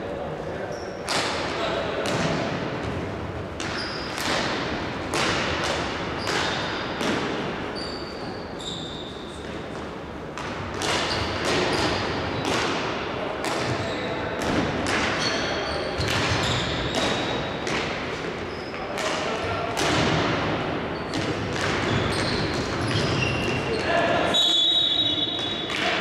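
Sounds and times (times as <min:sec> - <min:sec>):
hockey sticks striking ball: 0:03.6 - 0:07.6, 0:09.3 - 0:24.0, 0:25.4 - 0:26.0.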